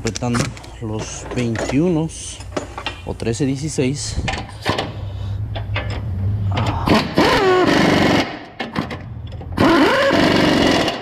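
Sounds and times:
impact wrench hammering: 6.8 - 8.9.

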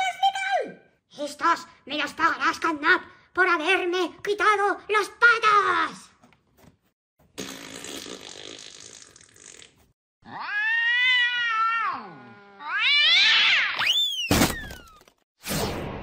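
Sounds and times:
cat yowling: 10.2 - 13.9.

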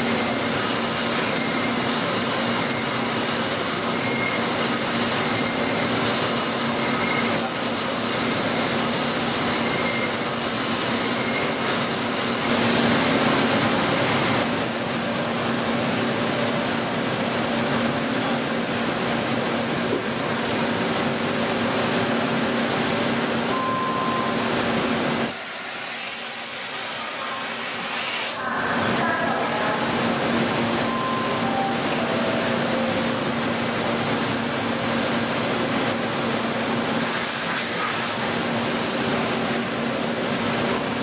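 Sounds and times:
loud hissing spray: 25.3 - 28.4, 37.0 - 39.1.

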